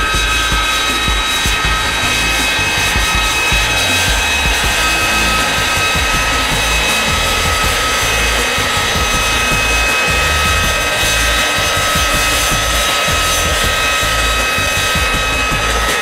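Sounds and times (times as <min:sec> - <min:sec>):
jet engine whine: 0:00.0 - 0:16.0.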